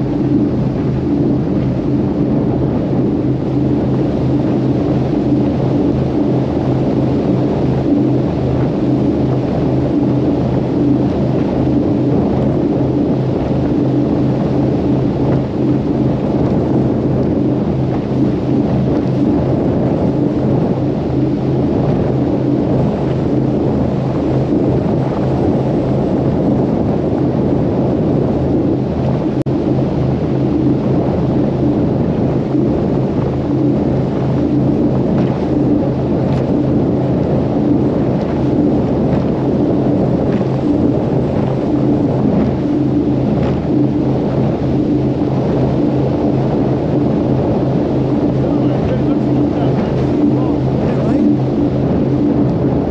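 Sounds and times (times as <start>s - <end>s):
powerboat engine drone: 0.0s - 52.9s
wind and water rushing: 0.0s - 52.9s.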